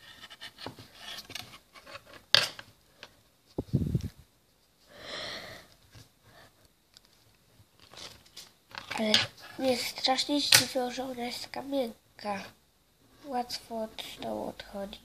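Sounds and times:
breathy sniff: 0:04.8 - 0:06.6
hands handling clay and plastic: 0:05.8 - 0:10.8.

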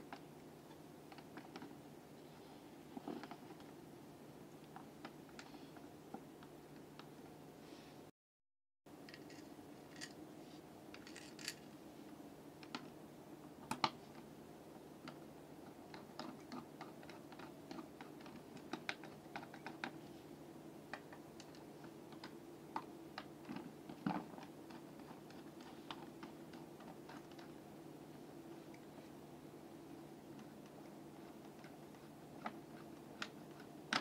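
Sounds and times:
faint steady hum: 0:00.0 - 0:08.1, 0:08.9 - 0:34.0.

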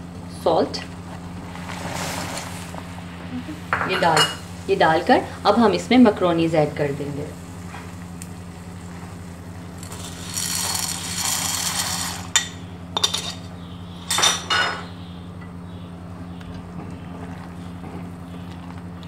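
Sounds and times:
macaroni rustling from plastic bag: 0:09.9 - 0:12.3.

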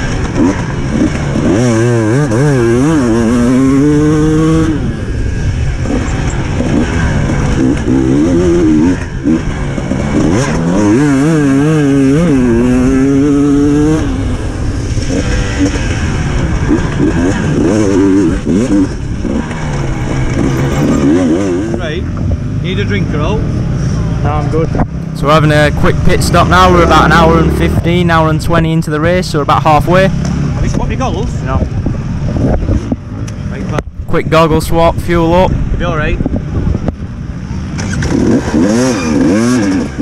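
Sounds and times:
wind noise: 0:00.0 - 0:22.6, 0:24.0 - 0:40.0
dirt bike engine revving: 0:00.0 - 0:40.0.

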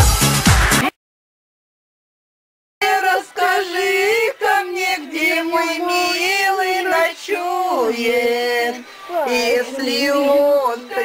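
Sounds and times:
high voice wailing: 0:09.1 - 0:11.0.

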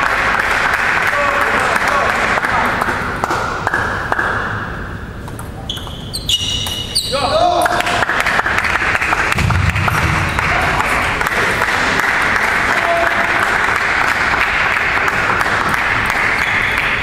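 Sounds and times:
spectators applauding: 0:00.0 - 0:03.4, 0:07.6 - 0:17.0.

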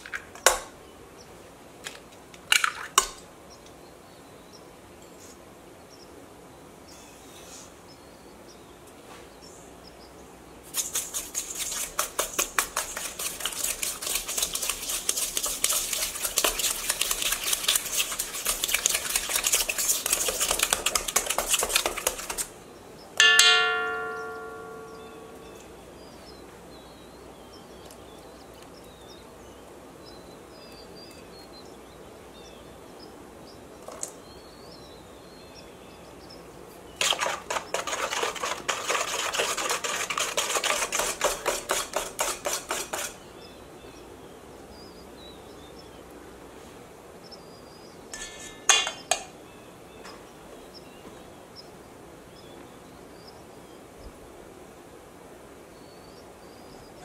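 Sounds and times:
whisk beating in metal bowl: 0:10.8 - 0:22.5, 0:37.0 - 0:43.2
sharp metal clinks: 0:23.2 - 0:25.5.

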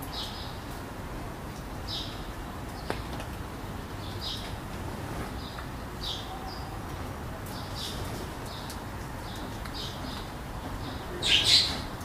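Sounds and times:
parakeets chirping: 0:10.9 - 0:11.8.

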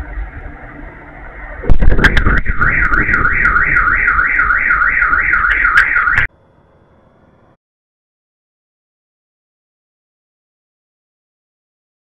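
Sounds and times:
car alarm wailing: 0:01.2 - 0:06.3
loud explosion bang: 0:01.6 - 0:04.2.

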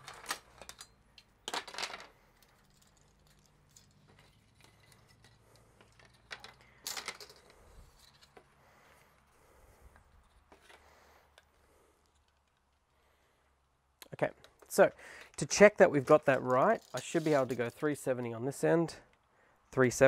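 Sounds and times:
tape crinkling and rustling: 0:02.2 - 0:09.3, 0:14.6 - 0:18.3.

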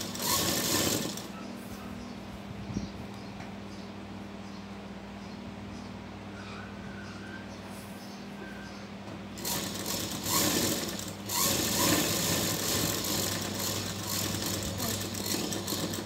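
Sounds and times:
sewing machine running: 0:00.0 - 0:01.3, 0:09.4 - 0:16.0.

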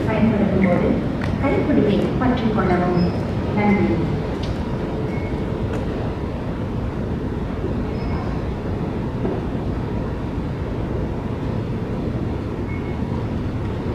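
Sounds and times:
faint steady hum: 0:00.0 - 0:13.9
low rumble of metro station: 0:00.0 - 0:13.9
faint short beeps: 0:12.7 - 0:13.0.

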